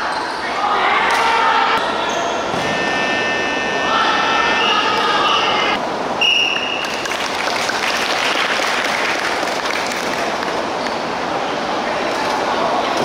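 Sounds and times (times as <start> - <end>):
high steady signal tone: 2.6 - 5.8
players clapping: 6.8 - 10.6.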